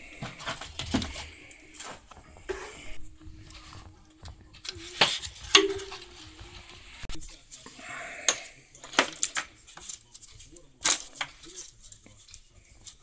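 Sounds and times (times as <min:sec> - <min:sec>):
hand moving hoses and covers: 0:00.0 - 0:07.7.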